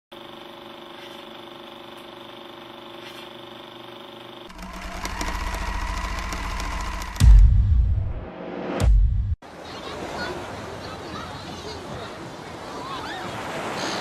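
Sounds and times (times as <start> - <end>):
film projector whirring: 0.1 - 7.6.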